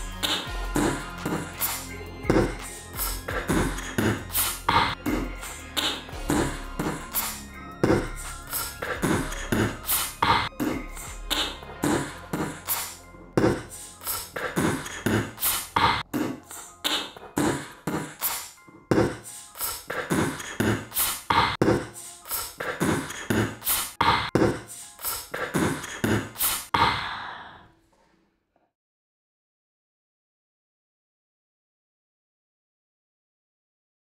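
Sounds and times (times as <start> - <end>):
beatboxing-style percussion beat: 0.0 - 27.0.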